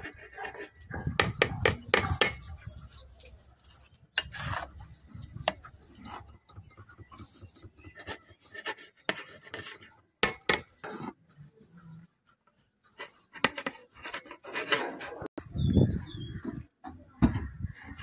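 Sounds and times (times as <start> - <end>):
metal ladle scraping a pot: 0.0 - 11.2, 13.0 - 15.3.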